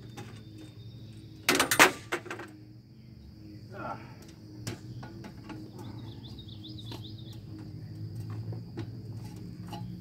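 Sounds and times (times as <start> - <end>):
bird chirps: 0.0 - 1.5, 4.8 - 8.0
high insect drone: 0.0 - 10.0
steady low hum: 0.0 - 10.0.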